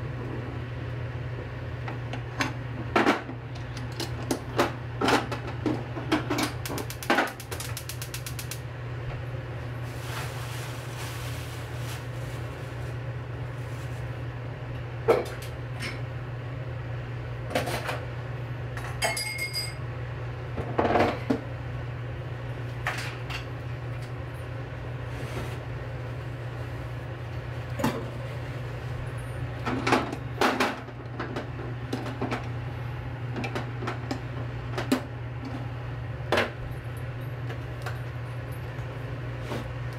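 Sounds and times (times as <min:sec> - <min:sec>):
steady low hum: 0:00.0 - 0:39.9
dishes and utensils clinking: 0:18.8 - 0:19.8
ringing clink: 0:19.0 - 0:19.8.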